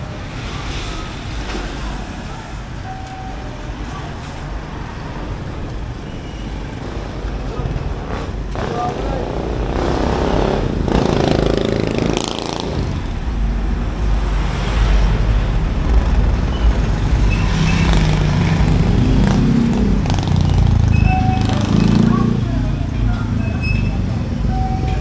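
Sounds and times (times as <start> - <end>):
vehicle engines running: 0.0 - 25.0
steady low rumble: 12.8 - 21.4.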